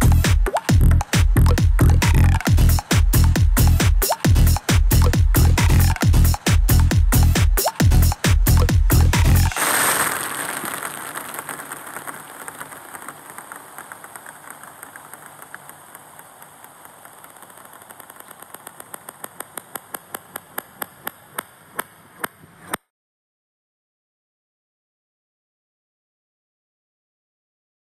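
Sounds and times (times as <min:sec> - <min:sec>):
reversed bouncing ball ticks: 0:00.0 - 0:09.6, 0:10.4 - 0:22.9.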